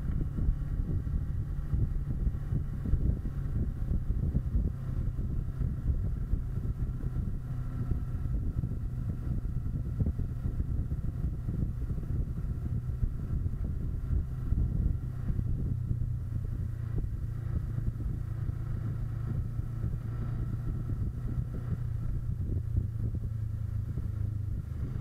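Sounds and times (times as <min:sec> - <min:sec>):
motorcycle engine running: 0:00.0 - 0:25.0
wind rumbling on microphone: 0:00.0 - 0:25.0.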